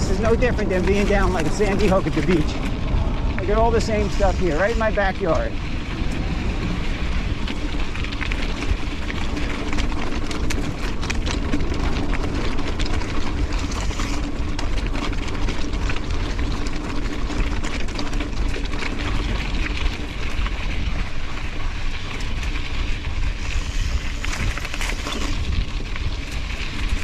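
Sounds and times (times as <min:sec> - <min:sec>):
steady low hum: 0:00.0 - 0:14.6
bike clicks and rattles: 0:00.0 - 0:27.0
tyre noise on dirt: 0:00.0 - 0:27.0
wind rumble on microphone: 0:00.0 - 0:27.0.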